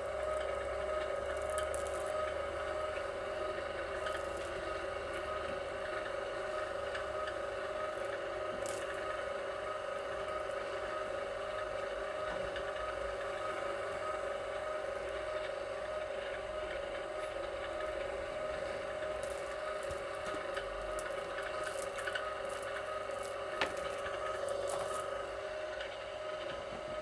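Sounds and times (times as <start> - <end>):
wire stripping machine motor hum: 0.0 - 27.0
light crackling and ticking: 4.0 - 5.3, 7.0 - 9.2, 19.0 - 25.2.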